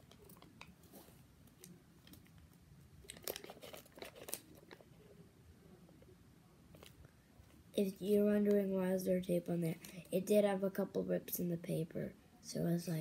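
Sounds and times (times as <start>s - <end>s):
paper crinkling and rustling: 0.0s - 4.9s.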